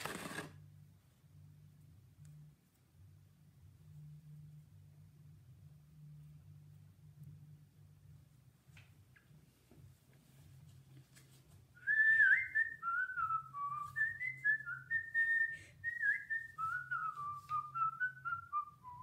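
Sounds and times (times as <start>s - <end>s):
person whistling a tune: 11.8s - 19.0s.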